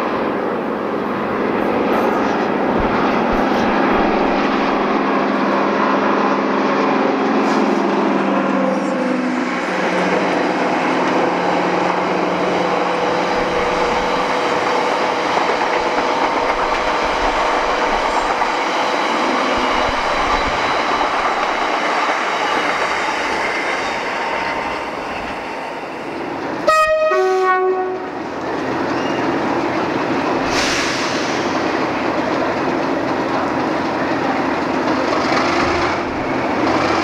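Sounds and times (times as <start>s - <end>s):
rail noise: 0.0s - 37.0s
two-tone train horn: 26.6s - 28.2s.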